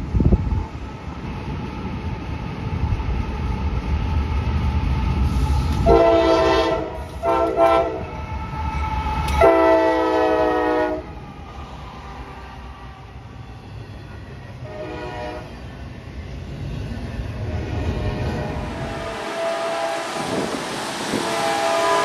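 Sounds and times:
locomotive air horn blasts: 5.8 - 8.1, 9.4 - 11.1, 14.6 - 15.6, 17.5 - 20.4, 21.1 - 22.0.

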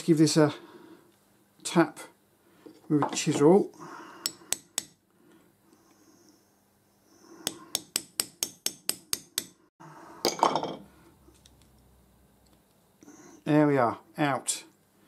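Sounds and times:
hammer tapping metal chisel: 4.2 - 5.0, 7.4 - 9.6.

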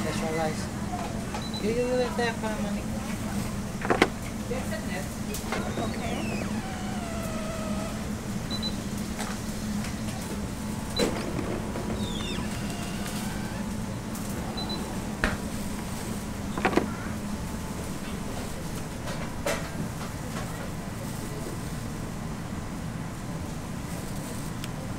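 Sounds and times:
machine motor hum: 5.2 - 15.3.

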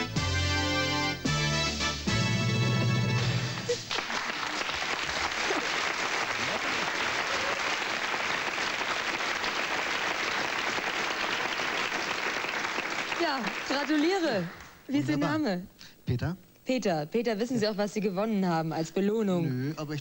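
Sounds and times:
studio audience applause: 3.4 - 14.8.

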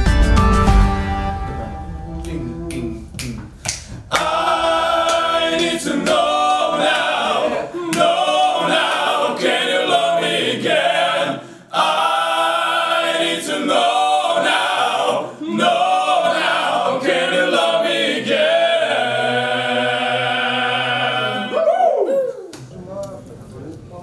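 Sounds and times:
men singing a cappella: 4.1 - 21.7.

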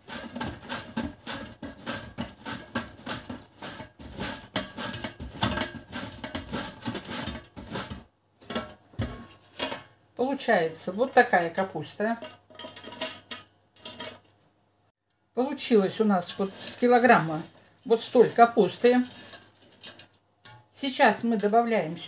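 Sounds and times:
cabbage shredding on mandoline: 0.0 - 8.1, 16.2 - 19.9.

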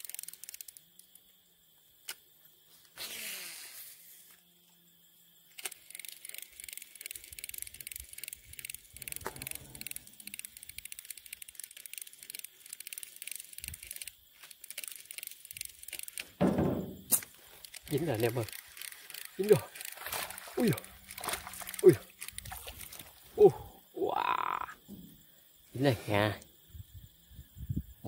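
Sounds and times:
fishing reel ticking: 0.0 - 1.2, 5.5 - 23.1
loud thump: 16.4 - 17.2.

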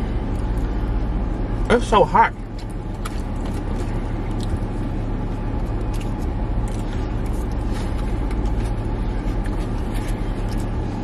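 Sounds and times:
car cabin hum: 0.0 - 11.0
person chewing food: 2.4 - 11.0.

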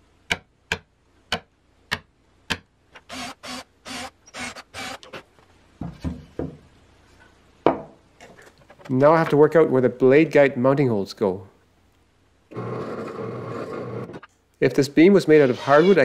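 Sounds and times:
power drill boring into wood: 3.1 - 5.0
wood knocks: 5.8 - 6.6.

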